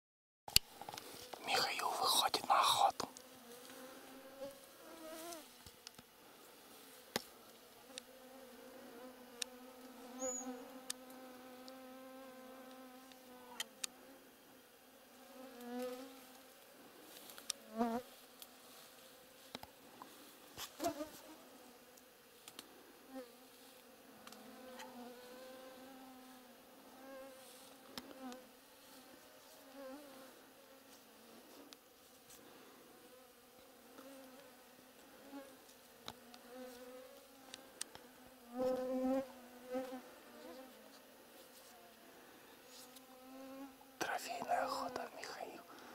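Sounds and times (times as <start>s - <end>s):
flying insects buzzing: 0.9s - 44.0s
faint ticks and clicks: 7.1s - 8.1s, 9.4s - 9.6s, 17.1s - 17.6s, 21.9s - 22.7s, 37.4s - 38.9s.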